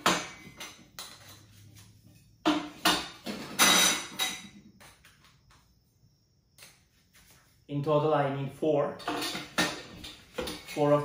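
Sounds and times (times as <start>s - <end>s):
metal tubes clinking and knocking: 0.0s - 1.7s, 2.4s - 4.6s, 9.0s - 11.0s.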